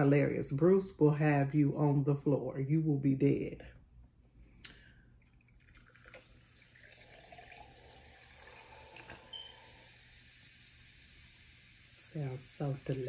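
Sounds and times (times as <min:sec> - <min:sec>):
soda fizzing over ice: 0:05.2 - 0:13.0.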